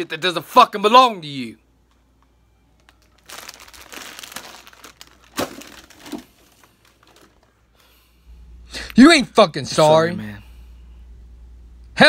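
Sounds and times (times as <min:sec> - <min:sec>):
chip bag crinkling: 0:02.8 - 0:07.5.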